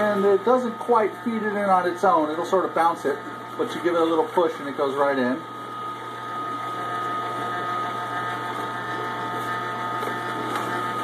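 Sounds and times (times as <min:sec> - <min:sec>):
juicer motor hum and whine: 0:00.0 - 0:11.0
auger crushing vegetables: 0:07.6 - 0:11.0.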